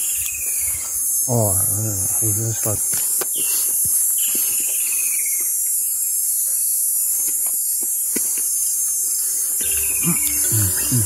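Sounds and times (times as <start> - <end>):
insects shrilling: 0.0 - 11.0
falling whistled call: 9.6 - 11.0.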